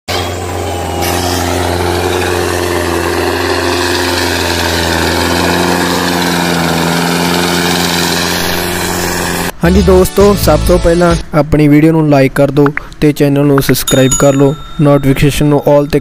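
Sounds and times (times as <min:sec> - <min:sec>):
model tractor engine running: 0:00.1 - 0:09.5.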